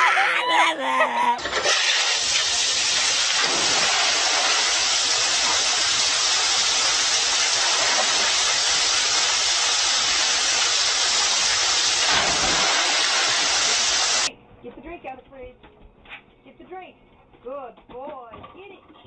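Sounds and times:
water splashing off a waterslide: 0:01.4 - 0:14.3.

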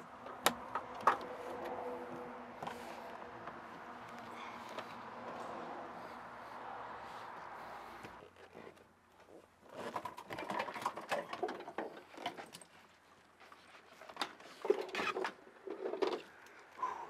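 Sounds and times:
plastic parts clicking and rattling: 0:09.7 - 0:12.8.

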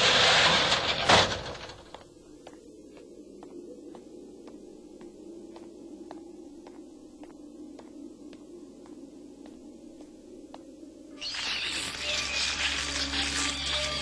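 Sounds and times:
low steady hum: 0:00.0 - 0:11.2.

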